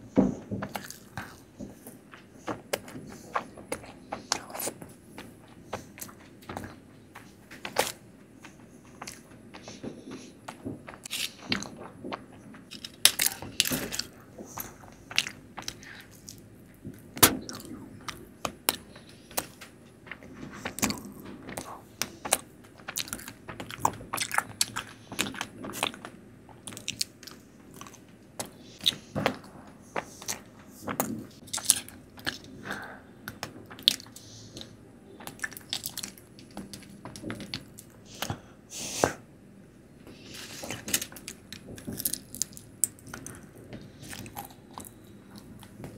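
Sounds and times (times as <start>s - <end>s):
close chewing mouth sounds: 0.6s - 38.5s, 40.2s - 45.9s.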